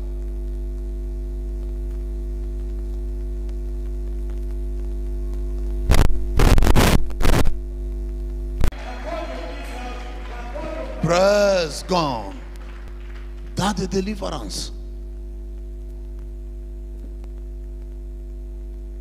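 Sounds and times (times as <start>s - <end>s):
electrical mains hum: 0.0s - 19.0s
loud crackling bursts: 0.1s - 8.7s.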